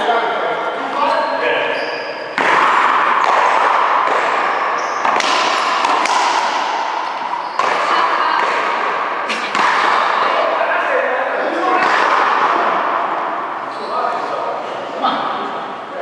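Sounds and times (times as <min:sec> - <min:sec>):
loud steady background noise: 0:00.0 - 0:16.0
ball thuds on wall and floor: 0:02.3 - 0:10.4.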